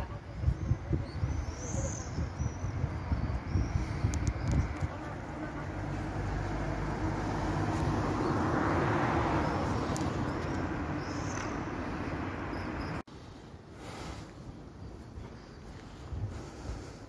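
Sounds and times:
motor vehicle passing by: 4.9 - 13.0.

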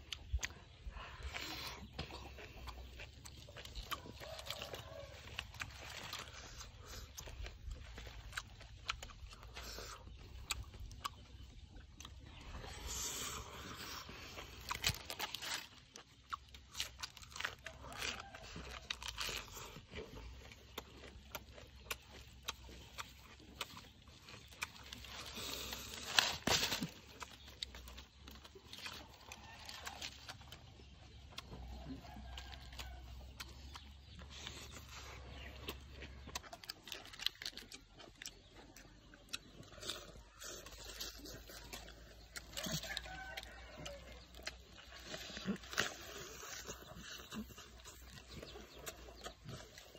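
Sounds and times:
eating sounds: 0.0 - 49.9
wet tearing and scraping: 12.3 - 20.4, 21.4 - 30.6
foil crinkling: 25.1 - 27.1.

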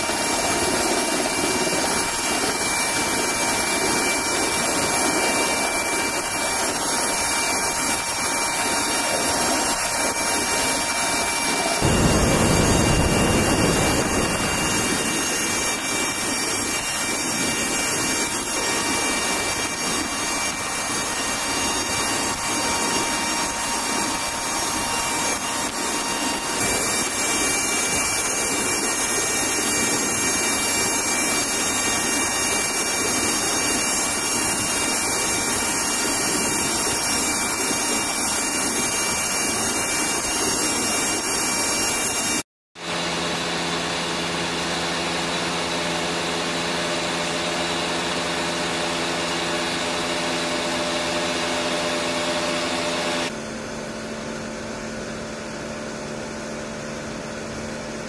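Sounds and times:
thin high whines: 0.0 - 42.4
aircraft cabin engine noise: 0.0 - 53.4.

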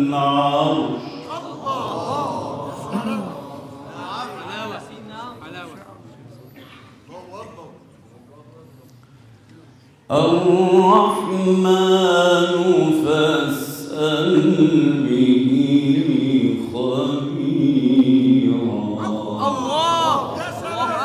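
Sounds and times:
man chanting melodic recitation: 0.0 - 1.3, 10.1 - 21.0.

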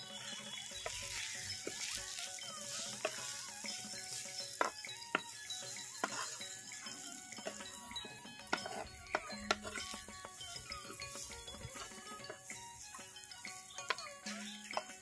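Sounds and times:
background music: 0.0 - 15.0
vegetables sizzling in oil: 0.0 - 15.0
spatula knocking against pot: 6.0 - 6.4, 7.4 - 12.5.

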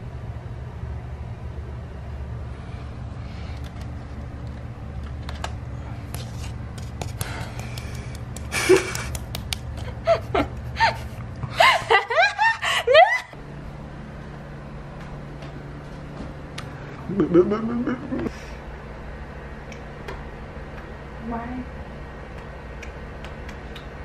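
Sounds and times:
steady low hum: 0.0 - 24.0
woman squealing and laughing: 10.0 - 13.4.

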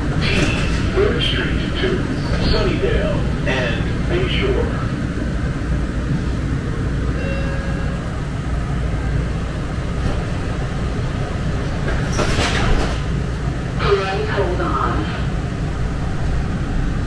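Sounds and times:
light-rail train rumbling: 0.0 - 17.0.

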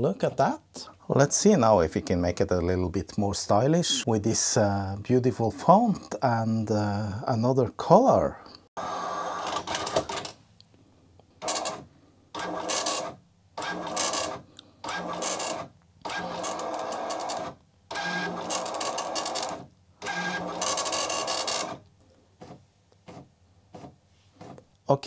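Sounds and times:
dot-matrix printer buzzing: 11.4 - 11.8, 12.4 - 21.8.

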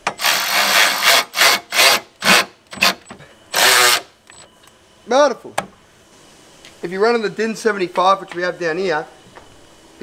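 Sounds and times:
cordless drill driving bolts: 0.0 - 4.1.

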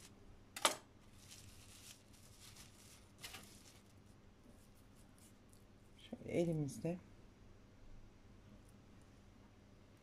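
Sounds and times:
plastic cling film crackling: 0.0 - 4.2.

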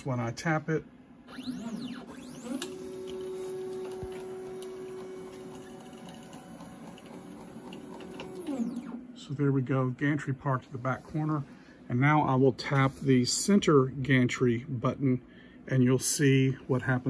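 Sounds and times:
stepper motors whining: 1.3 - 9.1.

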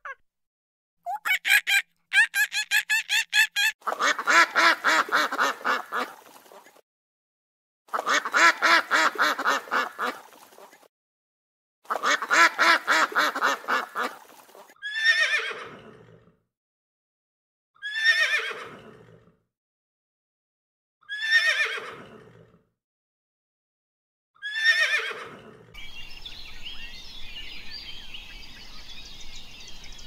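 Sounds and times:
fowl rapid calls: 1.1 - 6.4, 11.9 - 14.4.

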